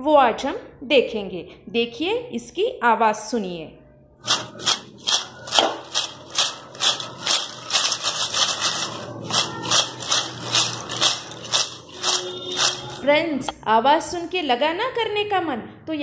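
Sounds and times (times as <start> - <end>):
chips rattling in a steel bowl: 4.2 - 13.1.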